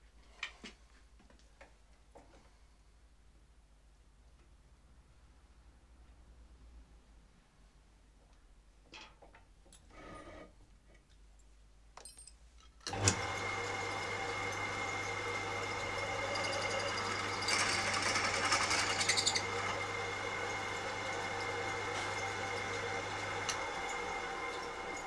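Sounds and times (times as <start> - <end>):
drill press motor whining: 12.9 - 25.0
gritty grinding sound: 16.0 - 19.8.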